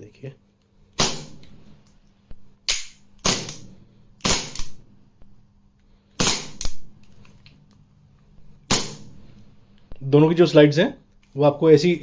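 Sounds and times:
pistol slide snapping back: 2.7 - 3.6
pistol gas pops: 6.1 - 6.9, 8.6 - 9.3.

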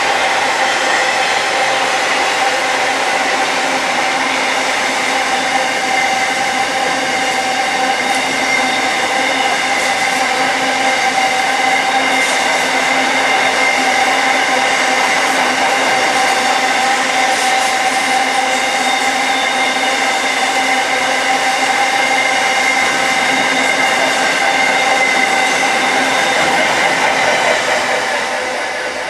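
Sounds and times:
constant whine: 0.0 - 29.0
train wheels rushing on rail: 0.0 - 29.0.

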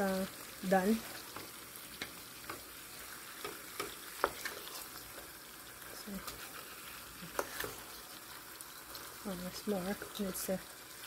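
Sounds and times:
fish sizzling in a pan: 0.0 - 11.0
spatula knocking and scraping pan: 1.3 - 5.3, 7.2 - 8.0.

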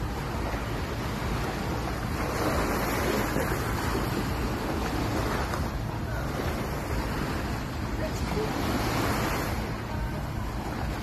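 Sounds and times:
waves washing onto sand: 0.0 - 11.0.

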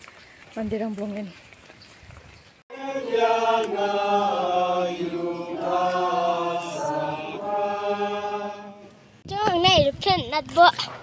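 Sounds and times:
congregation chanting in unison: 2.7 - 9.2.

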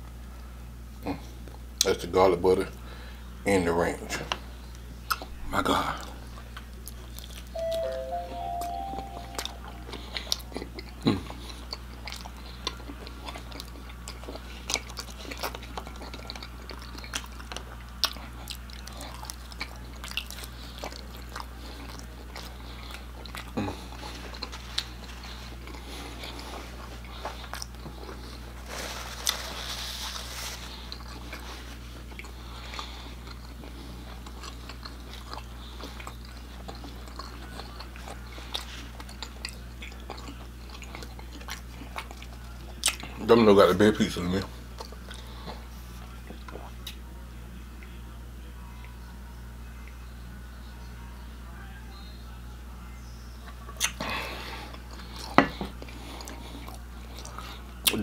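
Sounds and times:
faint low hum: 0.0 - 58.0
wet chewing mouth clicks: 53.8 - 54.0.

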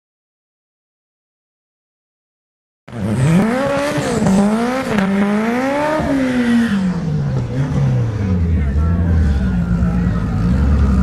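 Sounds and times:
car engine revving: 2.9 - 11.0.

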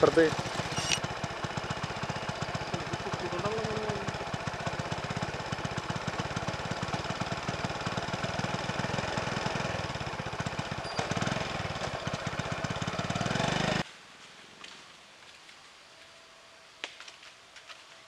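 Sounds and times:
vehicle engine idling: 0.0 - 13.8.

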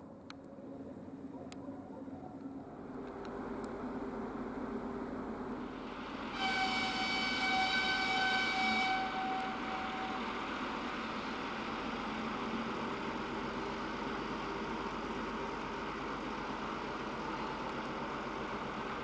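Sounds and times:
diesel engine running: 2.6 - 19.0
locomotive horn blast: 5.8 - 11.6.

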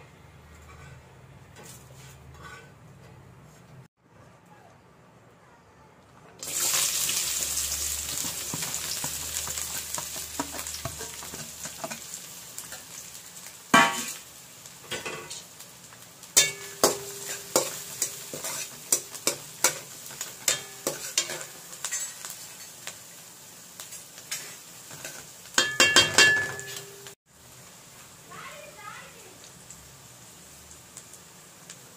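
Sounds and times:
metal spatula scraping pan: 0.6 - 3.3, 16.4 - 22.7
onions sizzling in hot oil: 6.4 - 31.9.

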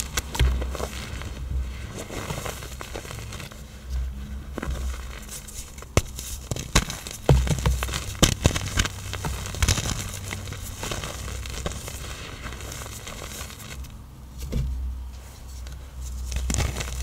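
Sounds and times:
dull thumps: 0.0 - 2.6, 3.9 - 11.9
hard blocks cracking and crunching: 0.0 - 14.0, 16.2 - 17.0.

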